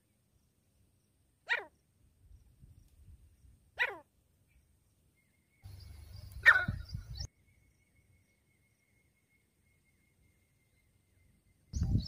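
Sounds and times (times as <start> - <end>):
francolin calling: 5.2 - 12.0.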